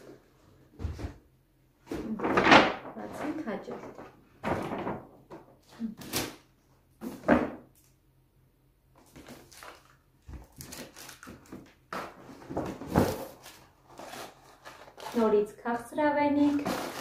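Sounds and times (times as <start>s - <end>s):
rustling and scraping of ribbon: 9.2s - 15.5s, 16.4s - 17.0s
hands rummaging in box: 16.4s - 17.0s.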